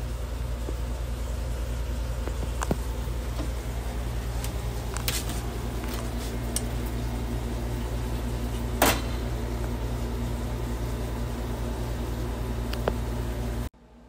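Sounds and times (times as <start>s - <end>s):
fan motor humming: 0.0s - 14.0s.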